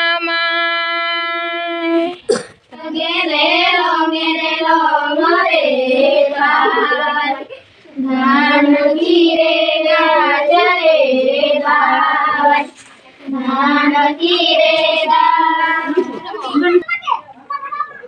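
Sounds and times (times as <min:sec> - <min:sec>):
girls singing folk song: 0:00.0 - 0:16.6.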